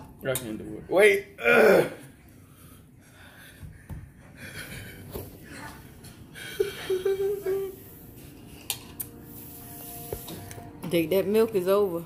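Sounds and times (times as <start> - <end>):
man moaning: 1.4 - 2.1.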